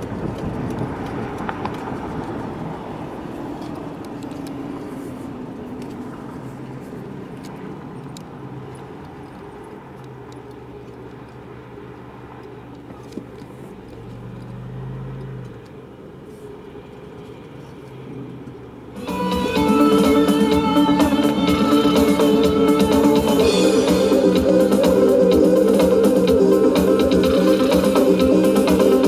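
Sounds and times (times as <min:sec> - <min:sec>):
car road and engine hum: 0:00.0 - 0:29.0
music: 0:19.0 - 0:29.0.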